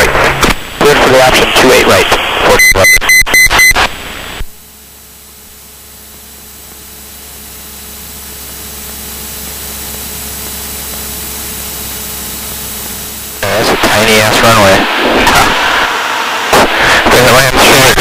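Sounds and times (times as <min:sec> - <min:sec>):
aircraft engine drone: 0:03.8 - 0:18.0.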